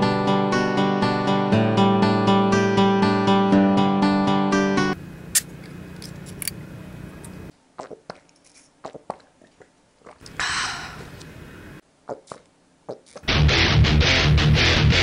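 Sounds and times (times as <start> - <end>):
guitar music: 0.0 - 5.0, 13.3 - 15.0
person gulping and swallowing: 7.8 - 10.5, 12.0 - 13.3.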